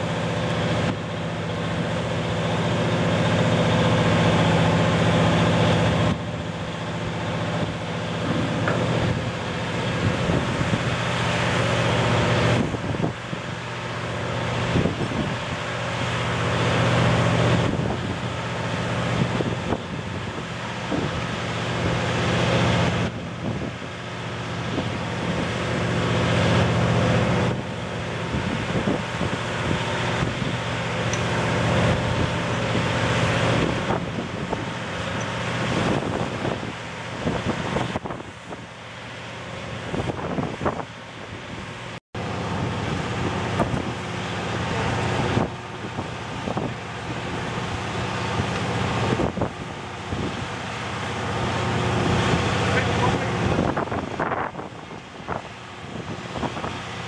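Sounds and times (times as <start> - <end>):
low machinery drone: 0.0 - 57.0
wind on microphone: 7.4 - 11.2, 12.0 - 13.6, 14.5 - 15.6, 17.0 - 38.8, 39.8 - 41.8, 42.4 - 57.0.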